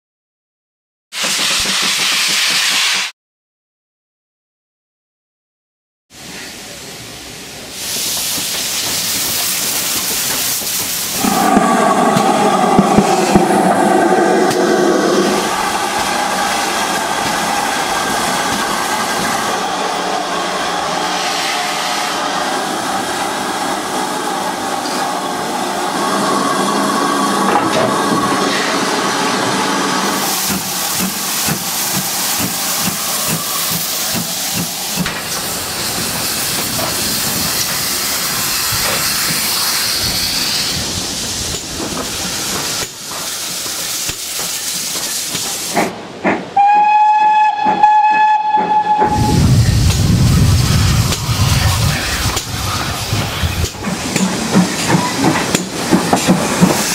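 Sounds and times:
steam locomotive hissing: 1.2s - 3.1s, 6.2s - 47.0s, 47.6s - 56.9s
steam whistle blast: 46.6s - 49.7s.

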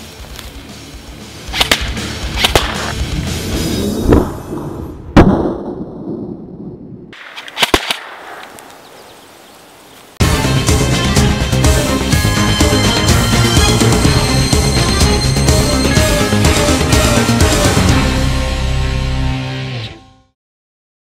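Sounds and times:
quick cracks: 1.5s - 3.0s, 7.2s - 8.8s.

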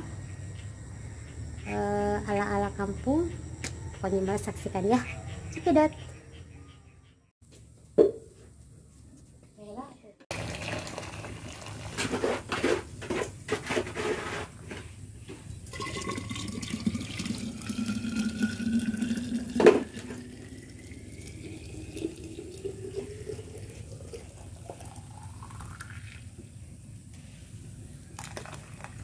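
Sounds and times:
hot water pouring into flask: 10.3s - 12.2s, 15.7s - 26.3s, 28.1s - 29.0s.

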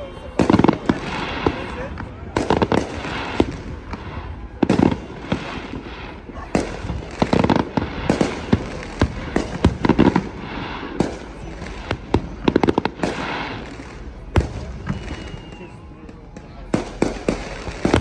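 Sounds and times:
fireworks bangs and crackling: 0.0s - 18.0s.

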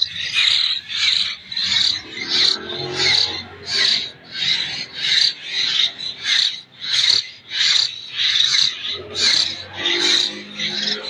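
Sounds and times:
bird chicks begging calls: 0.0s - 11.0s.

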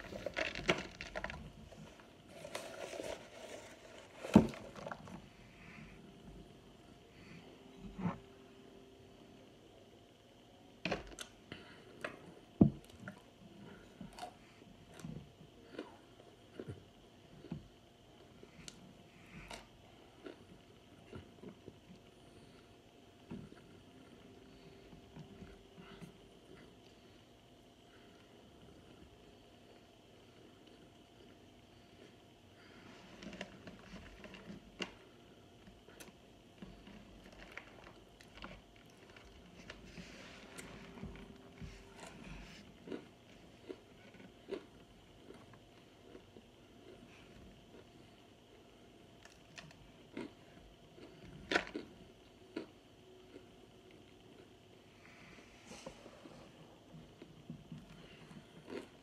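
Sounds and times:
person chewing crunchy food: 0.0s - 5.3s, 13.0s - 17.6s, 18.2s - 22.7s, 35.8s - 59.0s.

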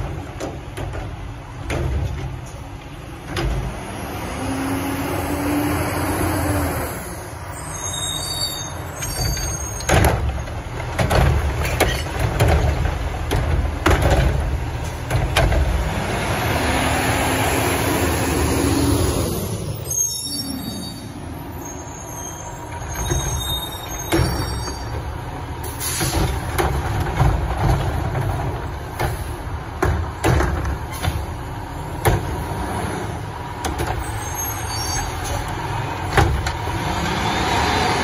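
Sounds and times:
diesel engine revving: 3.0s - 7.8s, 10.1s - 24.0s, 24.9s - 38.0s
bin bangs and knocks: 9.9s - 15.8s.

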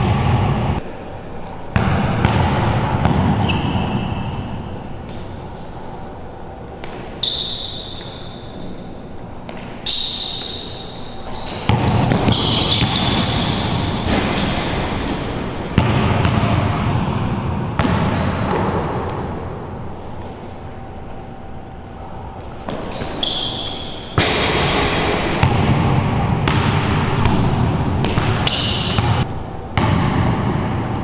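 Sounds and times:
sneakers squeaking on floor: 3.0s - 5.8s, 6.7s - 15.3s, 17.8s - 19.0s, 22.4s - 24.2s, 28.0s - 29.3s
basketball dribbling on hard court: 11.4s - 14.8s, 15.8s - 17.2s, 25.4s - 29.2s.

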